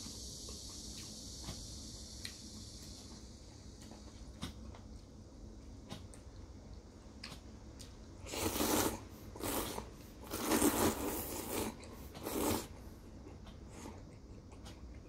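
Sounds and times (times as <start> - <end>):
person slurping noodles: 8.2 - 12.8.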